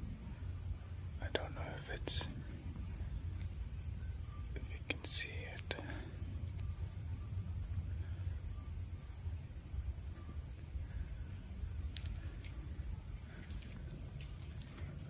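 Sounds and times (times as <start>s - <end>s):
crickets chirping: 0.0s - 15.0s
low rumble: 2.0s - 15.0s
faint clicks: 11.9s - 12.6s.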